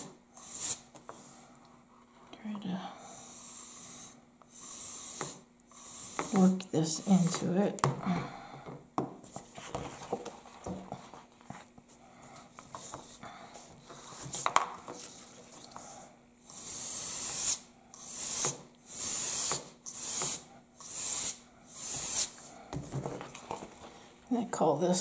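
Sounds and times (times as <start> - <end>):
aerosol can spraying: 0.4 - 0.8, 3.5 - 7.5, 16.5 - 22.4.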